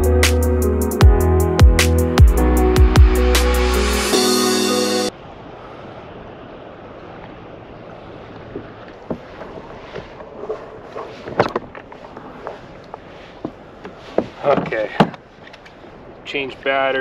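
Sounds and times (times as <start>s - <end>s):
wind: 0.0s - 17.0s
water noise around kayak: 3.9s - 17.0s
gear knocking in kayak hull: 8.4s - 15.6s.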